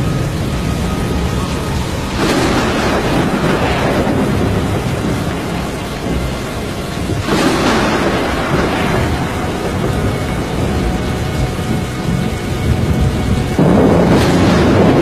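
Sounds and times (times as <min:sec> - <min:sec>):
heavy rain: 0:00.0 - 0:15.0
rumbling wind: 0:00.0 - 0:15.0.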